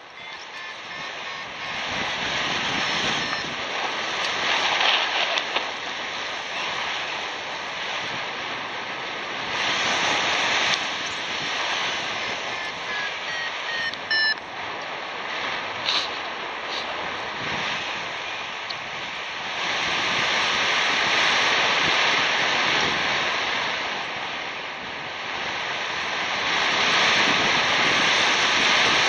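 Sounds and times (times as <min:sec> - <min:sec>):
airflow rushing over microphone: 0:00.0 - 0:29.0
faint short beeps: 0:00.1 - 0:03.6, 0:12.1 - 0:14.4.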